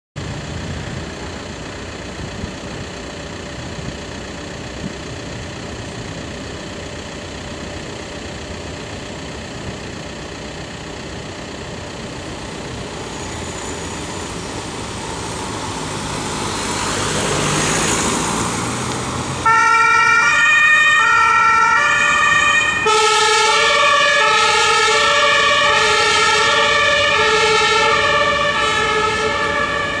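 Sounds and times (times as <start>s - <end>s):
street noise: 0.2s - 30.0s
car driving past: 13.0s - 19.6s
two-tone siren: 19.4s - 30.0s.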